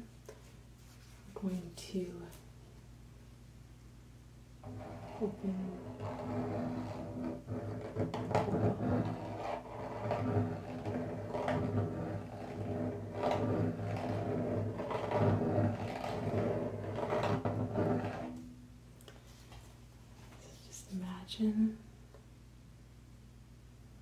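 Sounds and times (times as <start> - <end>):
frame drum head rubbed: 4.6 - 18.5.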